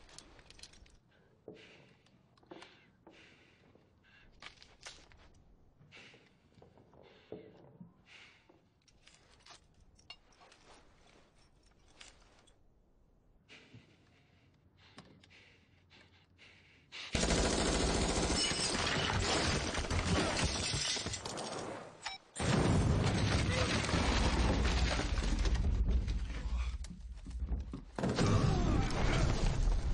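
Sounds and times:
handguns being handled: 4.3s - 5.4s
dense gunfire: 17.2s - 20.4s.

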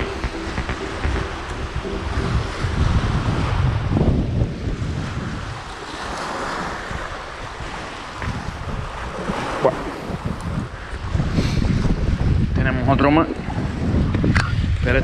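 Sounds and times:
wind buffeting microphone: 0.0s - 15.0s
small waves lapping: 4.8s - 11.3s.

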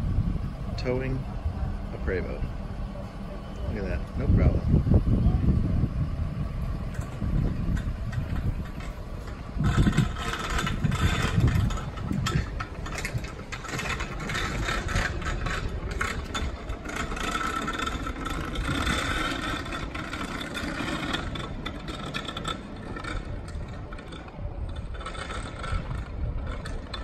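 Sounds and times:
truck engine running: 0.0s - 27.0s
towed bus shell rattling: 6.6s - 27.0s.

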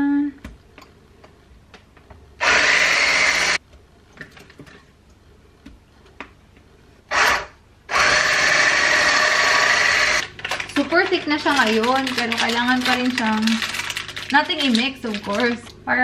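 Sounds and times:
stick blender whirring: 2.4s - 3.6s, 7.1s - 10.4s.

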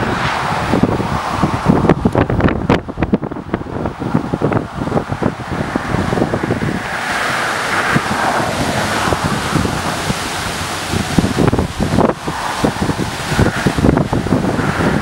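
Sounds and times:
wind buffeting microphone: 0.0s - 15.0s
steady hiss: 6.9s - 15.0s.

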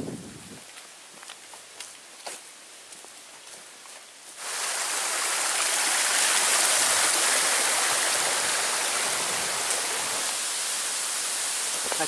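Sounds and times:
stream rushing over rocks: 4.3s - 12.0s.

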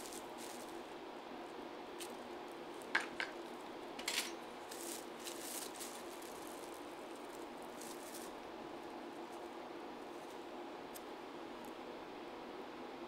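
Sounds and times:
plastic wrap and paper rustling: 0.0s - 0.9s, 4.6s - 10.4s
faint room hiss: 0.0s - 13.0s.

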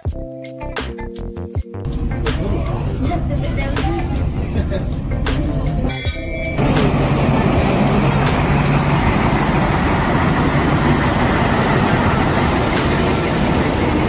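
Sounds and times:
diesel locomotive engine drone: 1.9s - 14.0s
train rumble: 1.9s - 14.0s.

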